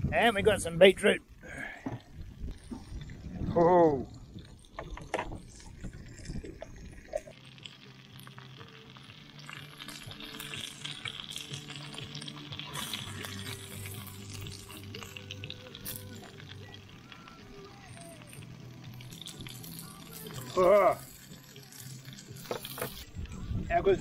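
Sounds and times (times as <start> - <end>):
fish sizzling in oil: 0.0 - 3.5, 4.2 - 23.3
quiet background music: 5.2 - 24.0.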